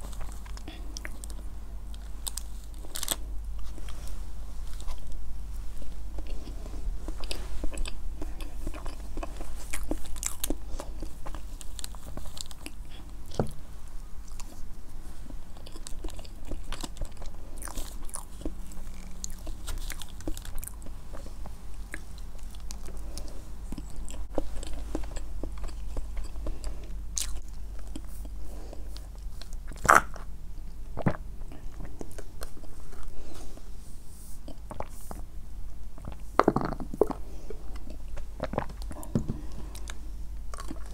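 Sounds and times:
chewing with wet mouth clicks: 39.8s - 40.9s.

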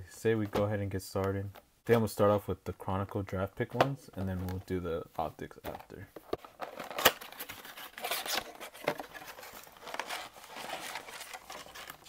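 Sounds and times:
packaging crinkling and tearing: 6.4s - 12.0s.

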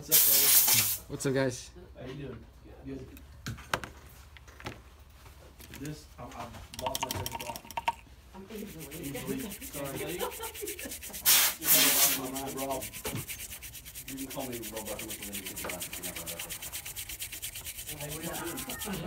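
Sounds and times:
toothbrush scrubbing circuit board: 8.5s - 19.0s.

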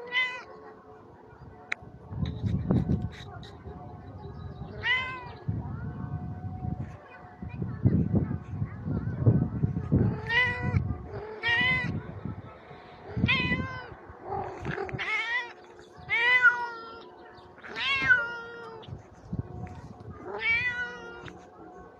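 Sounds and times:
cat meowing: 17.7s - 18.8s, 20.4s - 21.4s.

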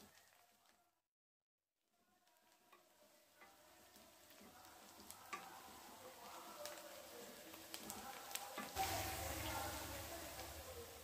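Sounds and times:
onions sizzling in oil: 0.0s - 0.8s, 2.2s - 11.0s.

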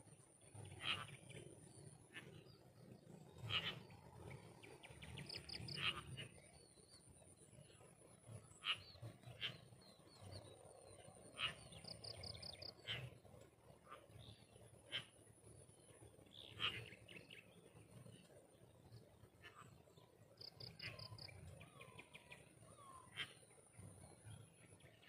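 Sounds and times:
birds chirping: 0.1s - 25.0s.

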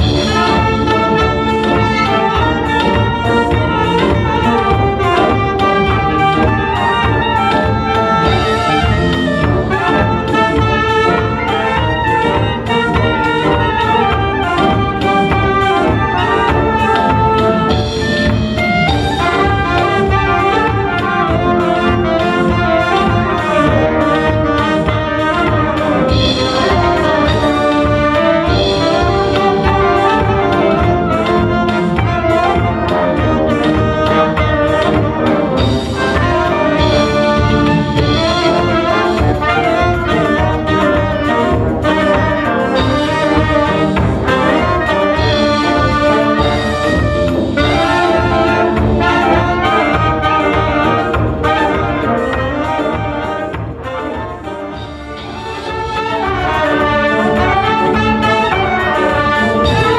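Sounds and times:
drum kit beat: 0.0s - 59.9s
low brass horns: 0.0s - 59.9s
trumpets and saxophone melody: 0.0s - 59.9s.

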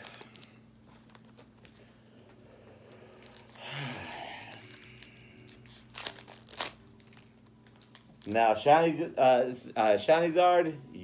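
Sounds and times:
foil wrapper crinkling and tearing: 0.0s - 1.3s, 2.9s - 8.6s
low steady hum: 0.0s - 11.0s.

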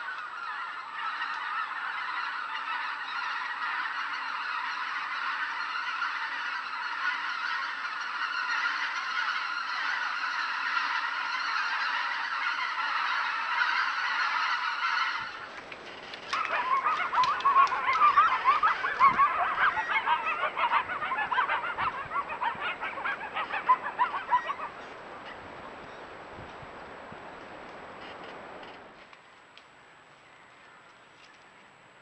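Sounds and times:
geese and ducks honking: 0.0s - 28.9s
faint hiss: 22.5s - 32.0s.

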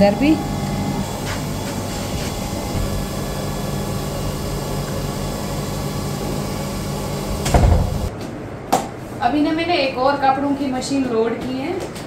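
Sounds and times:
machine humming and whirring: 0.0s - 8.1s.

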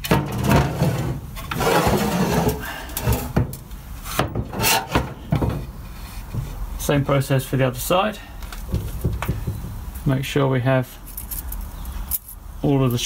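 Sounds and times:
metal casing scraping on workbench: 0.0s - 6.4s.

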